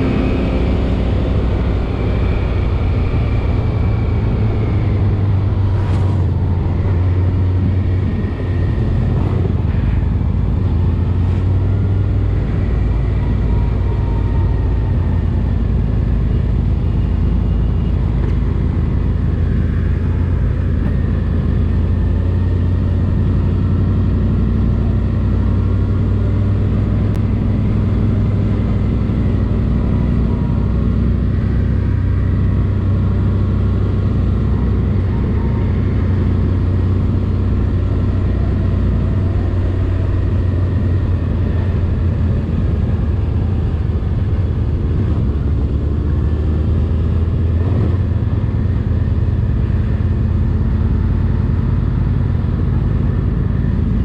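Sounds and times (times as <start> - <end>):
motorcycle engine running: 0.0 - 54.0.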